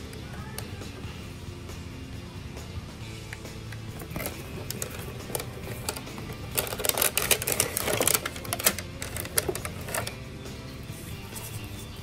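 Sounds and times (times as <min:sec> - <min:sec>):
faint background music: 0:00.0 - 0:12.0
plastic tray crinkling and clicking: 0:04.0 - 0:10.2.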